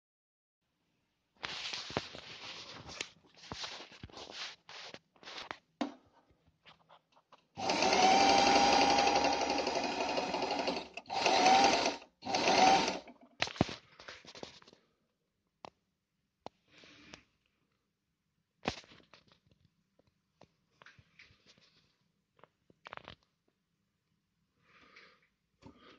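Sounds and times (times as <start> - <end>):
sewing machine stitching: 7.6 - 13.2.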